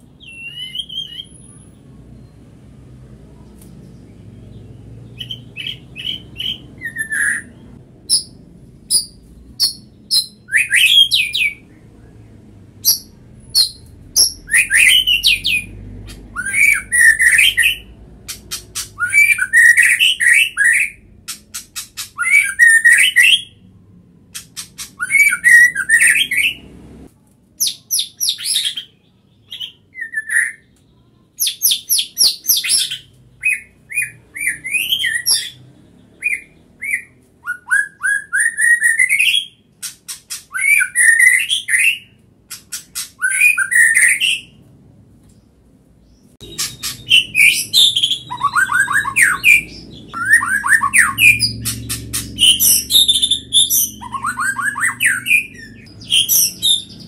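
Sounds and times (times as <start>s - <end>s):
songbird singing: 3.3s - 26.8s, 45.3s - 57.0s.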